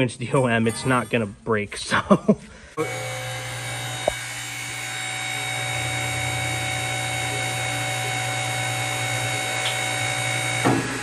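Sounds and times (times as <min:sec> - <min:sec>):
tube bender humming: 0:02.8 - 0:11.0.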